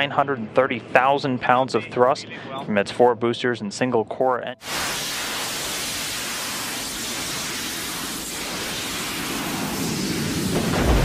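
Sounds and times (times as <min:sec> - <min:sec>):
steady rushing hiss: 0:04.6 - 0:11.0.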